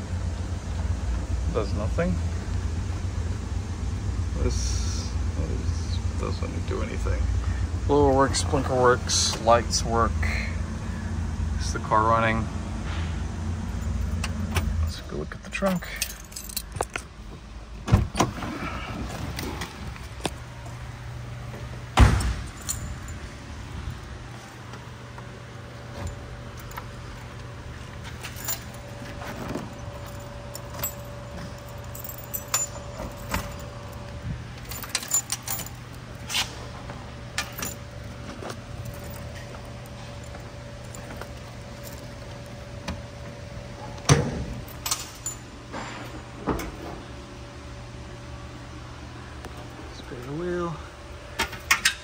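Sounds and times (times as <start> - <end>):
steady low hum: 0.0 - 52.0
keys jangling: 15.7 - 17.1, 22.2 - 23.3, 28.0 - 36.5, 37.4 - 42.4, 44.7 - 45.5
loud thump: 22.0 - 22.5
rattles: 28.0 - 36.6.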